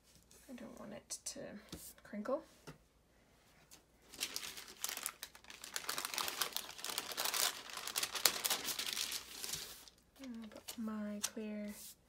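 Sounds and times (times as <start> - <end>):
paper crinkling and rustling: 4.1 - 11.8.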